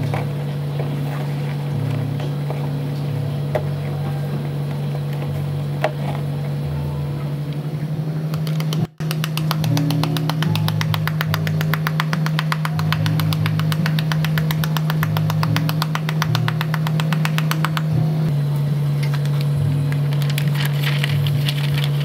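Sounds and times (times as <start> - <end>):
machine humming: 0.0 - 22.0
fast even ticking: 8.3 - 18.3.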